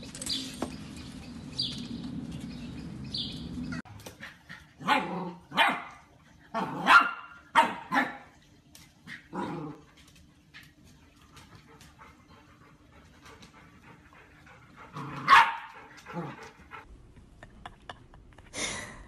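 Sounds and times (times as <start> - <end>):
puppy barking in high yips: 15.2 - 15.7.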